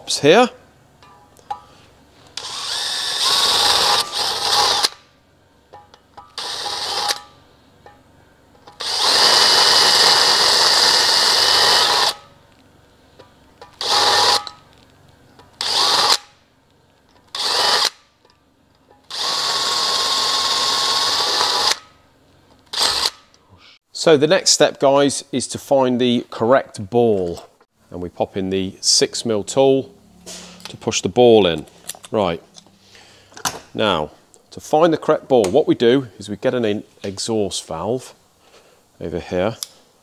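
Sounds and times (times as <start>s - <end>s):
cordless drill cutting metal: 2.4s - 5.0s, 6.3s - 7.4s, 8.8s - 12.3s, 13.8s - 14.6s, 15.6s - 16.3s, 17.3s - 18.1s, 19.1s - 21.9s, 22.7s - 23.2s.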